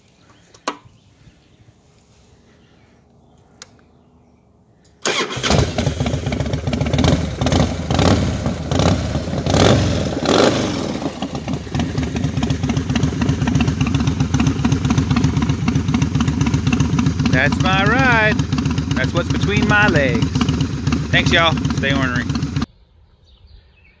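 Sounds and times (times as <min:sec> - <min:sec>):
motorcycle engine starting: 0:04.9 - 0:22.7
motorcycle engine revving: 0:05.0 - 0:22.7
motorcycle engine idling: 0:05.1 - 0:22.7.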